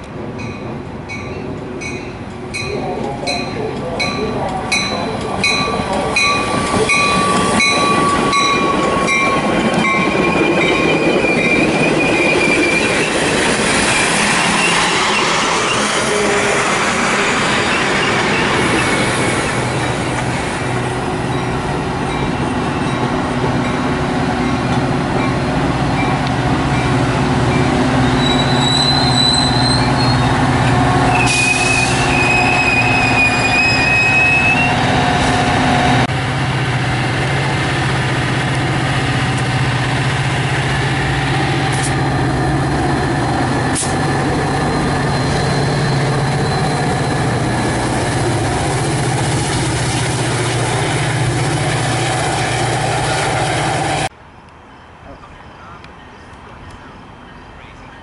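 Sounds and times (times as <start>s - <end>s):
diesel locomotive hum: 0.0s - 54.2s
train wheels rumbling on rail: 0.0s - 54.2s
high wheel squeals: 6.2s - 16.5s, 27.5s - 35.4s, 43.6s - 48.0s.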